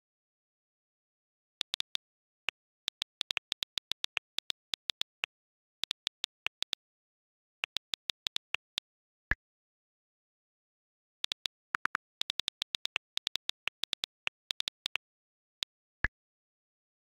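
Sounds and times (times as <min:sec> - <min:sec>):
phone keyboard clicks: 0:01.6 - 0:06.8, 0:07.6 - 0:08.8, 0:11.2 - 0:15.0.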